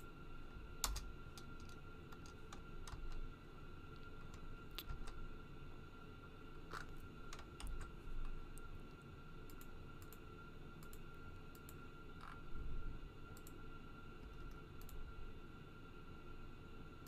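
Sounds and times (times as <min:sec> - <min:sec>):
faint steady hum: 0:00.0 - 0:17.0
computer mouse clicks: 0:09.5 - 0:10.2, 0:10.8 - 0:12.4, 0:13.3 - 0:13.6, 0:14.2 - 0:15.0.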